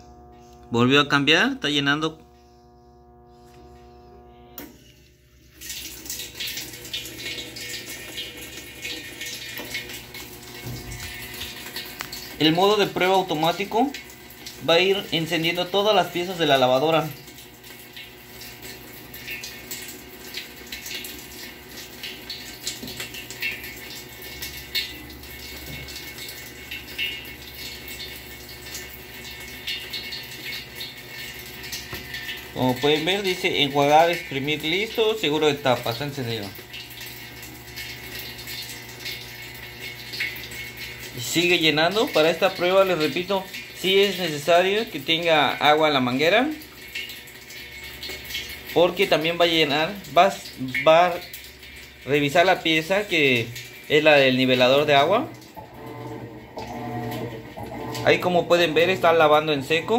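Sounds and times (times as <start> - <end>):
steady hum: 0.0 - 18.0
water rushing into washer tub: 4.4 - 59.9
small water splashes: 5.4 - 12.4.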